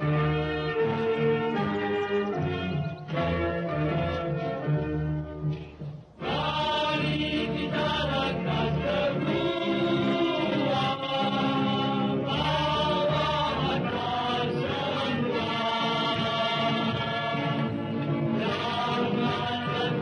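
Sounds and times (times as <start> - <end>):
choir singing held notes: 6.2 - 20.0.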